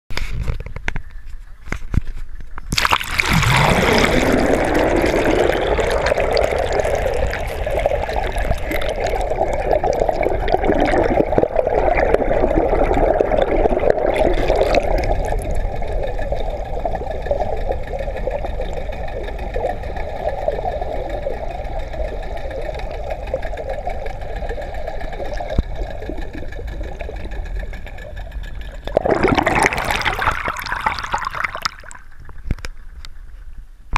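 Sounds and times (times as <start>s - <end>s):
faint whine: 0.2s - 33.9s
water splash: 2.7s - 15.6s, 28.9s - 32.6s
underwater water rushing: 2.7s - 32.8s
steady drone: 3.0s - 29.7s.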